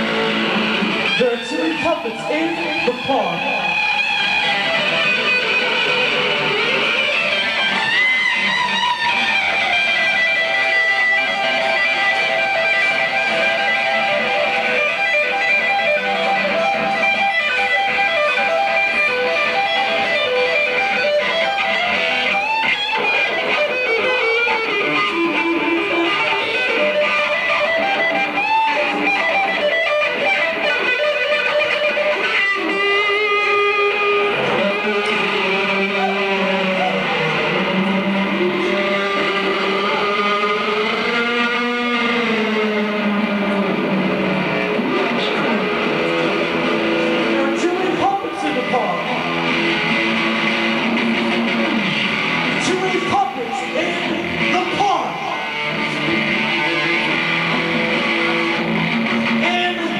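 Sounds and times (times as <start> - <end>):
electric guitar solo: 0.0 - 59.9.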